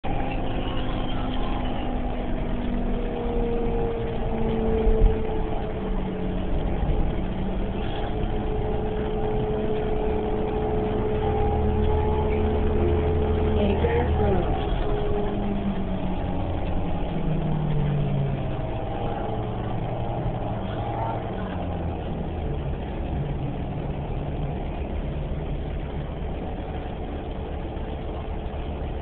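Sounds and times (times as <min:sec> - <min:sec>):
bus drivetrain hum and rumble: 0:00.0 - 0:29.0
thin steady whine: 0:00.0 - 0:29.0.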